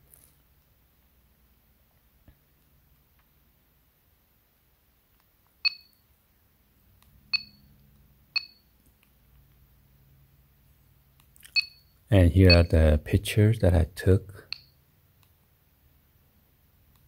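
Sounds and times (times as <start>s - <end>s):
short high beeps: 7.4s - 7.7s, 8.4s - 8.7s, 11.6s - 12.7s.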